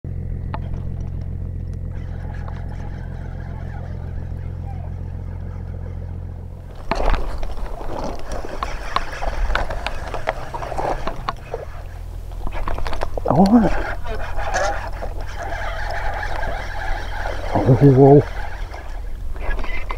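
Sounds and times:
small engine humming: 0.1 - 19.9
scattered knocks and clatter: 0.4 - 3.4, 6.6 - 13.4.

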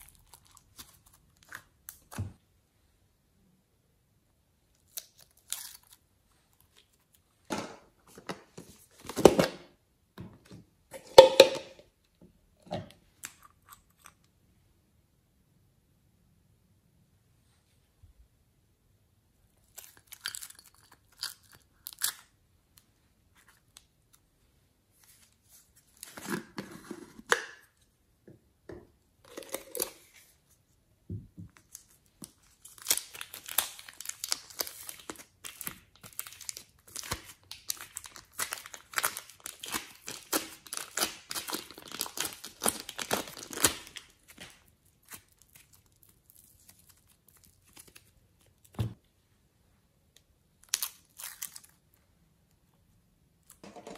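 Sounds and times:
plastic crinkling and slime squeezed: 0.0 - 2.4, 4.7 - 7.3, 19.6 - 22.4, 31.6 - 48.9, 50.6 - 52.6.

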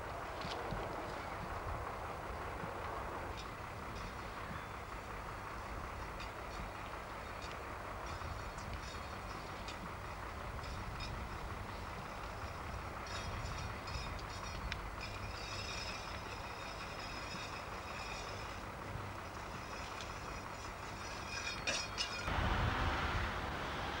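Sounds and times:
machine engine rumble: 0.0 - 24.0
faint high metallic whining: 10.5 - 22.3.

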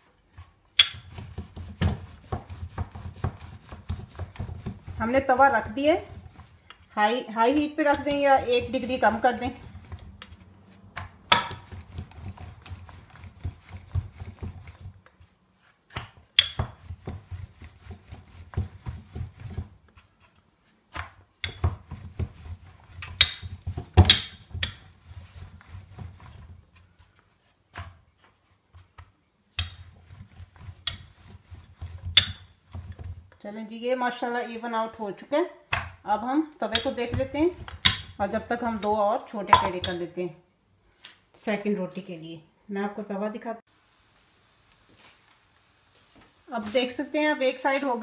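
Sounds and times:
rolling pin rubbing on board: 0.3 - 28.9, 29.6 - 33.3
rolling pin knocks: 0.7 - 5.0, 11.0 - 12.5, 39.5 - 40.0.

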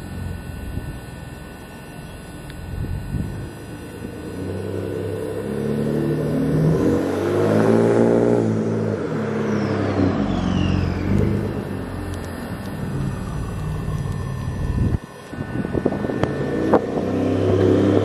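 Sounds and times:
truck driving past: 4.4 - 18.0.

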